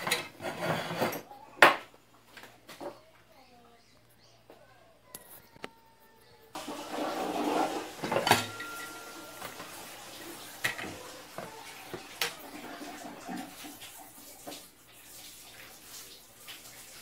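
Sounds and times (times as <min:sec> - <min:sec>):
pressure cooker scraping on wood: 0:00.0 - 0:01.2, 0:06.6 - 0:10.0.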